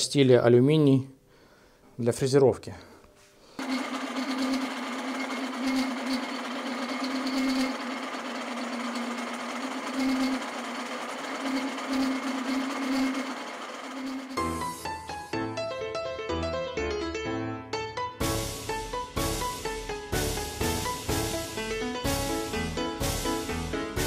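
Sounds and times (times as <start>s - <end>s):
rough metal cutting noise: 3.6s - 14.9s
milling machine motor hum: 3.6s - 15.0s.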